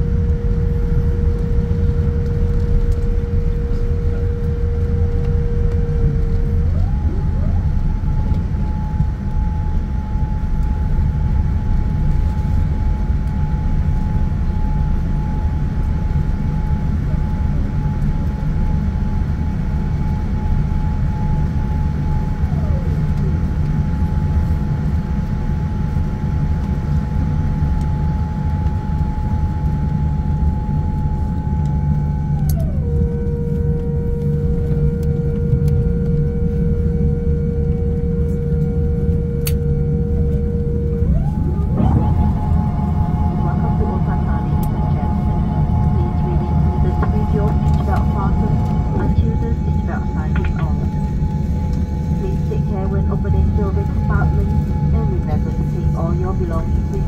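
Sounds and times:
airplane cabin rumble: 0.0s - 57.0s
thin whine: 27.7s - 57.0s.

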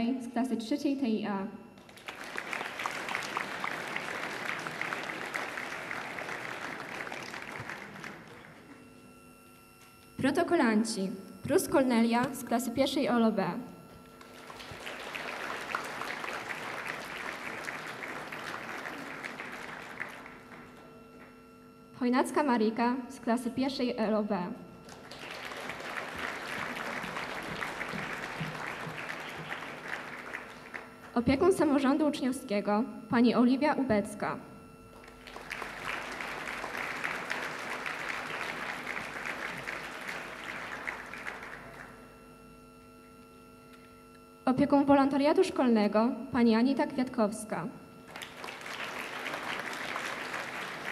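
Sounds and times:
audience applause: 1.8s - 8.9s, 14.2s - 21.2s, 24.8s - 31.1s, 35.0s - 42.1s, 48.1s - 50.9s.

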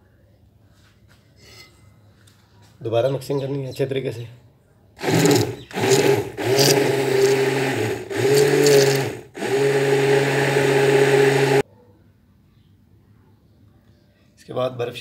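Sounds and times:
electric stick blender whirring: 5.0s - 11.6s.

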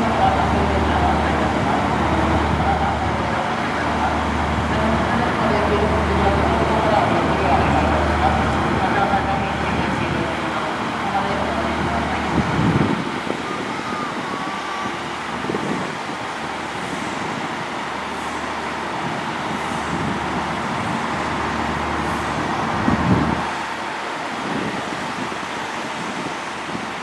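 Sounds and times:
diesel railcar engine idling: 0.0s - 27.0s.

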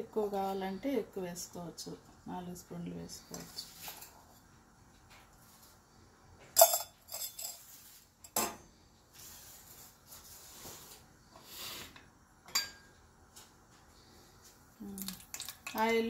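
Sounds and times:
metal spoon and cup clinking: 6.6s - 7.6s, 12.5s - 12.9s.

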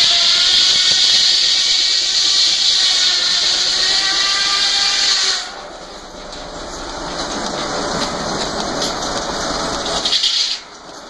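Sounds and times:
circular saw cutting log: 0.0s - 5.6s
loud steady hiss: 0.0s - 6.1s.

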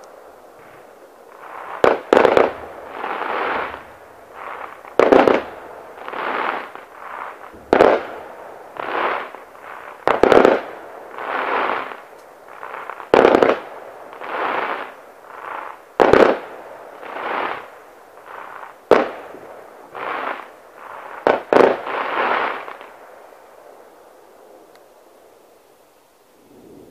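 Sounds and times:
firework shells bursting: 0.0s - 16.4s
fireworks hissing: 0.0s - 23.0s.

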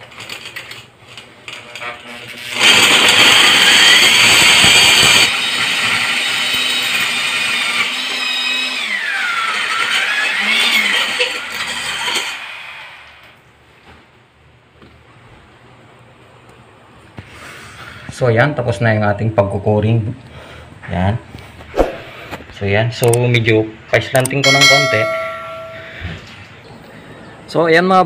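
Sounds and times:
core drill motor whining: 2.6s - 13.1s.

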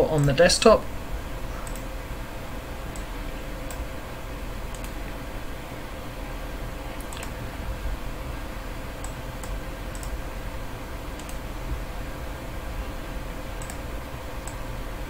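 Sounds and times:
low room hum: 0.0s - 15.0s
computer mouse clicking: 1.6s - 1.9s, 4.7s - 5.0s, 7.0s - 7.4s, 9.0s - 10.2s, 11.1s - 11.4s, 13.6s - 14.6s.

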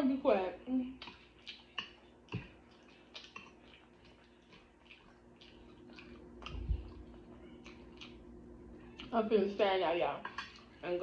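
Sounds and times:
chewing with lip smacks: 0.9s - 9.3s, 10.2s - 11.0s.

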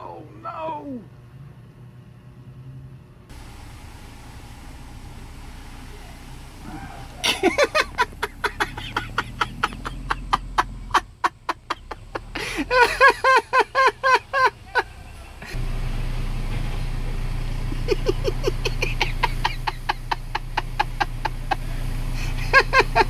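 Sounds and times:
person laughing hard: 7.2s - 15.6s, 17.7s - 23.0s.

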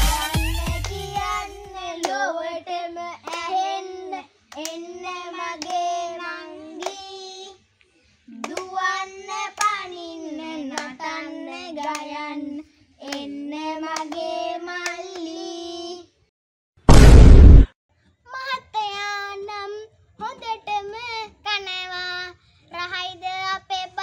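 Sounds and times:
hand claps: 0.0s - 2.2s, 3.3s - 3.6s, 4.5s - 4.8s, 5.6s - 5.9s, 6.8s - 7.0s, 8.4s - 8.8s, 9.5s - 9.8s, 10.7s - 11.0s, 11.8s - 12.1s, 13.0s - 13.3s, 13.9s - 15.3s
children singing: 0.0s - 7.6s.

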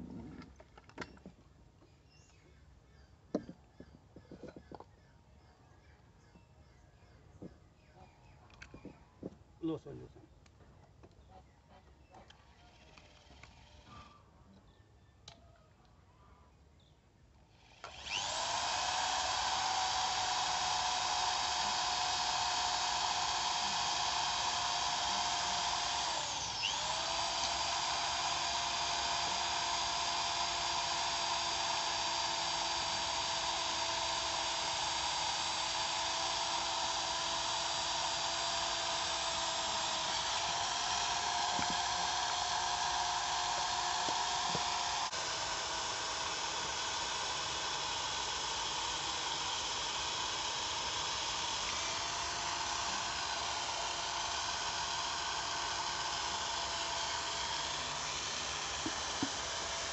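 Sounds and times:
electric drill motor whining: 17.5s - 59.9s.

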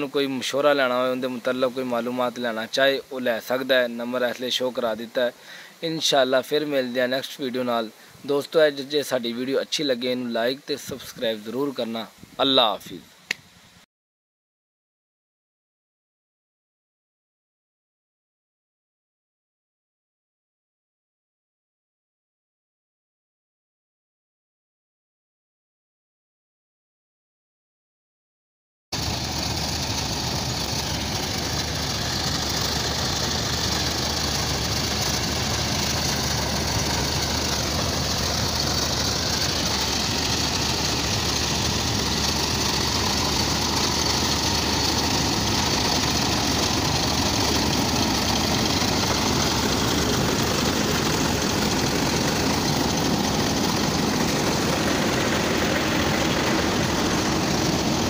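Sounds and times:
combine harvester drone: 29.0s - 58.0s.

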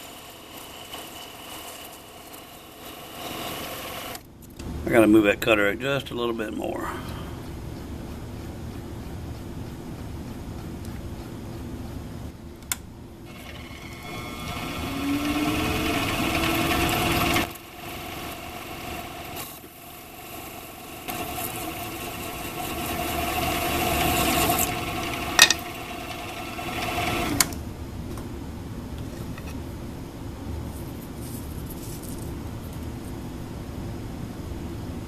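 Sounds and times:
metal lathe cutting aluminum: 13.3s - 27.5s.

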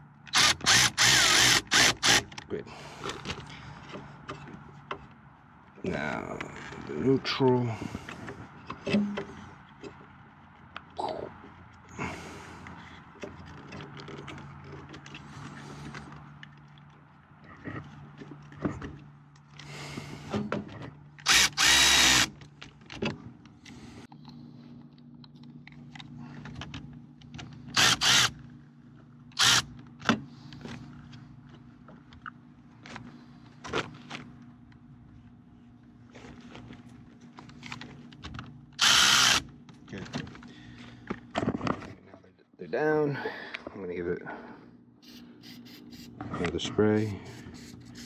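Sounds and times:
steady low hum: 0.0s - 48.0s
cordless power driver whirring: 0.3s - 2.3s, 21.2s - 22.3s, 27.7s - 28.4s, 29.4s - 29.7s, 38.8s - 39.5s
small clicks and handling noises: 36.1s - 38.6s.

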